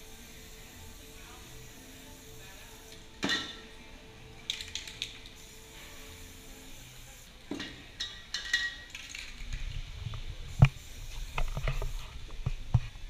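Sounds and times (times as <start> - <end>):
spray paint cans scraping: 4.5 - 6.0, 7.6 - 13.0.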